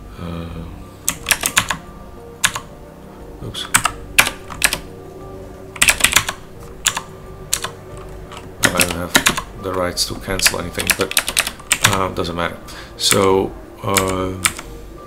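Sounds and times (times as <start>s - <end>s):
keyboard typing: 1.0s - 1.8s, 2.4s - 2.7s, 3.6s - 4.9s, 5.7s - 12.1s, 13.9s - 14.7s.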